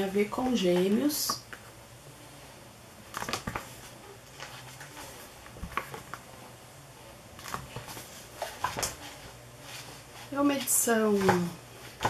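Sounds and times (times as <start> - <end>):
book pages rustling: 3.1 - 6.4, 7.4 - 12.0.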